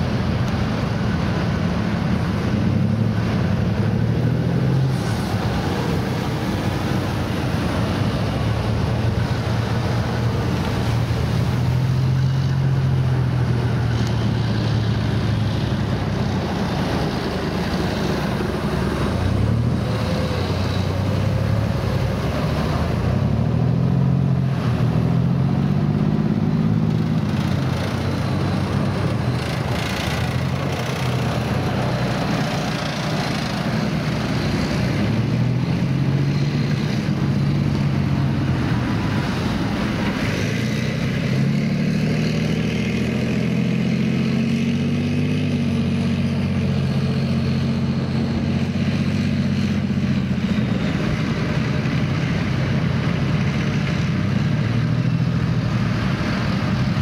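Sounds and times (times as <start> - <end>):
heavy diesel engine running: 0.0 - 44.0.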